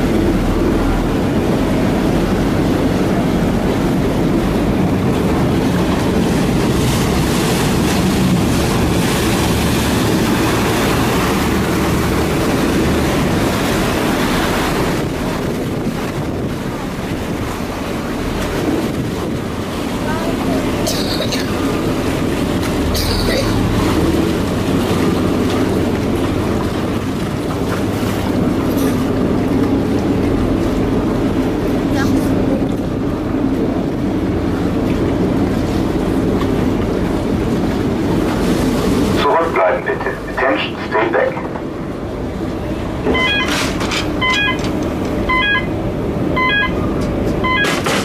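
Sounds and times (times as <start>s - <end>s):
ferry engine rumbling: 0.0s - 48.0s
warning beeper double chirp: 43.1s - 43.5s, 44.2s - 44.6s, 45.3s - 45.7s, 46.4s - 46.8s.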